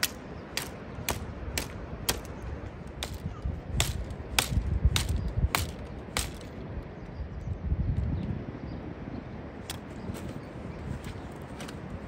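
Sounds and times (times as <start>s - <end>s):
machete chopping a branch: 0.0s - 2.4s, 3.0s - 6.5s.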